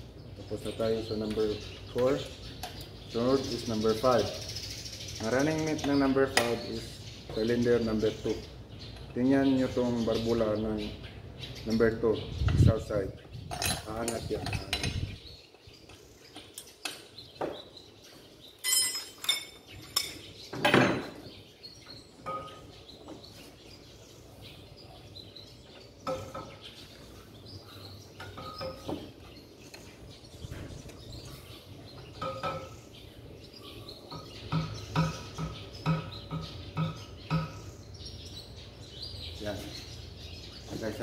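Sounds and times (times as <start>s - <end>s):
hand tools clinking on metal: 13.5s - 15.1s, 18.6s - 20.8s.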